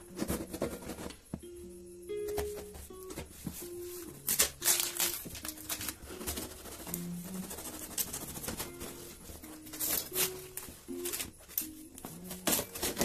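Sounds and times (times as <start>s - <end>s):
cardboard tearing: 4.3s - 8.7s.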